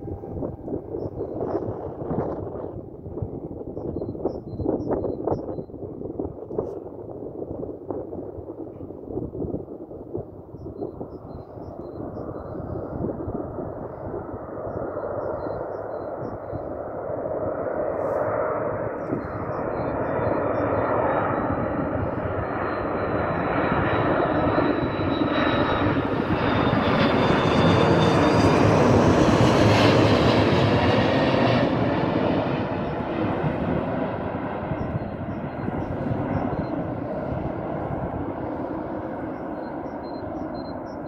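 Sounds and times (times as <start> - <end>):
high jet whine: 0.0 - 3.8, 17.9 - 41.0
jet engine and airflow noise: 0.0 - 41.0.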